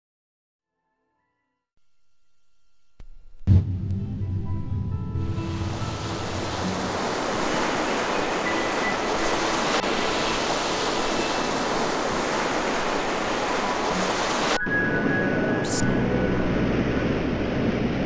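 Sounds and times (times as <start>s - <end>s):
waves breaking: 5.2s - 18.0s
wind: 5.4s - 18.0s.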